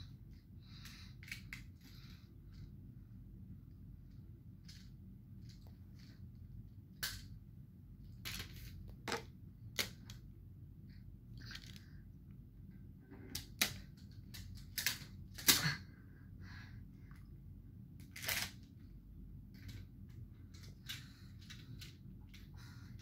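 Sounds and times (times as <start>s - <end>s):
low steady hum: 0.0s - 23.0s
plastic toy blocks clicking: 13.3s - 15.6s.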